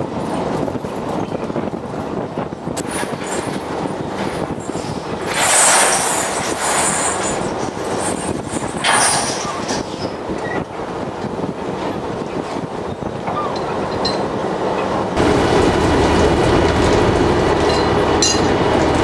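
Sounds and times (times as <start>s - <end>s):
machinery running: 2.1s - 10.6s, 13.6s - 19.0s
harsh hiss: 5.2s - 9.1s.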